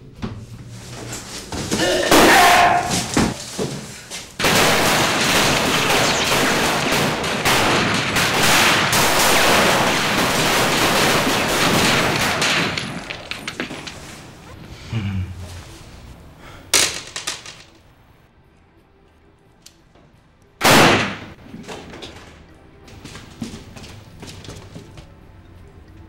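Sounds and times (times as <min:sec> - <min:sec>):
heavy gunfire: 0:04.4 - 0:14.0, 0:20.6 - 0:21.4.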